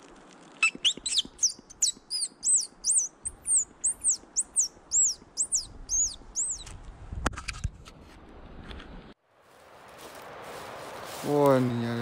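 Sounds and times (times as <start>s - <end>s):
bird chirping rapidly: 0.6s - 6.7s.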